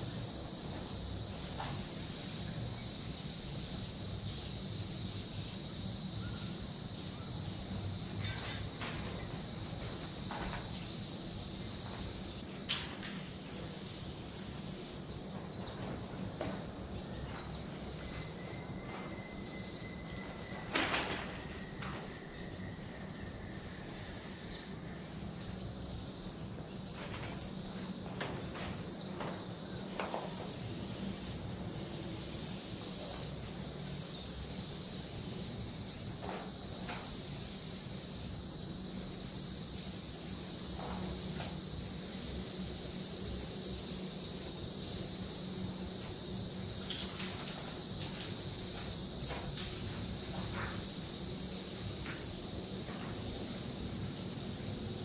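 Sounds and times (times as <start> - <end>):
high-pitched insect drone: 0.0 - 12.5, 13.5 - 55.0
spray can hissing: 13.2 - 15.0.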